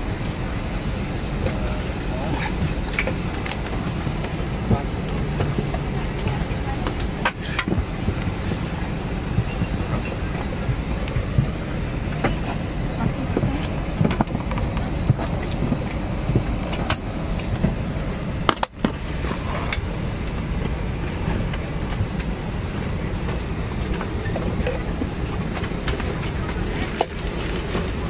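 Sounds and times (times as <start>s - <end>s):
low rumble of aircraft cabin: 0.0s - 28.0s.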